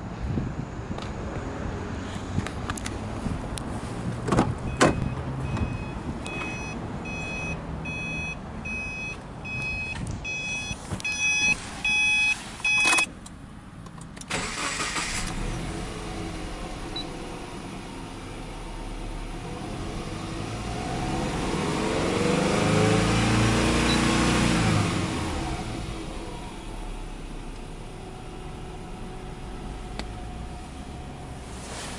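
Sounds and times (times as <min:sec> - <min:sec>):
car warning chime beeping: 0:04.7 - 0:13.1.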